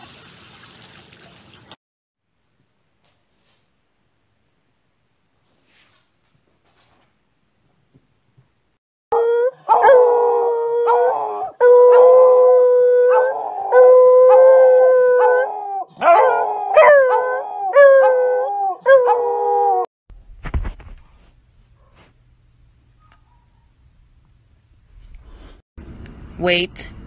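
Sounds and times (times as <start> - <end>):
dogs howling: 9.1 - 19.9.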